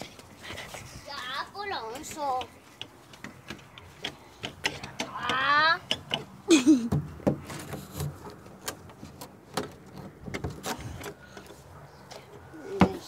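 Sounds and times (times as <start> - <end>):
taps and knocks: 1.9 - 8.4.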